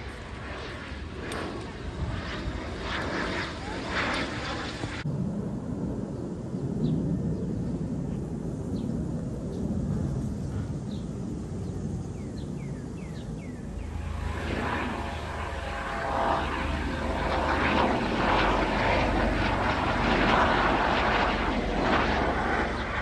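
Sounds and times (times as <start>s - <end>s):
helicopter flying over: 0.0s - 6.0s, 9.4s - 23.0s.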